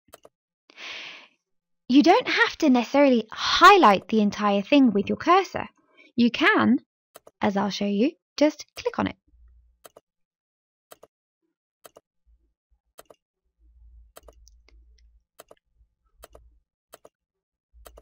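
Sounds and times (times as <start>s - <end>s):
computer mouse clicks: 14.2s - 14.6s, 16.2s - 17.1s.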